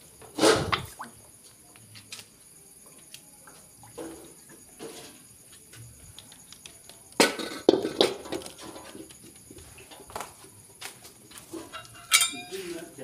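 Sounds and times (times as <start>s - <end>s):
metal cookware clanking: 11.6s - 12.8s.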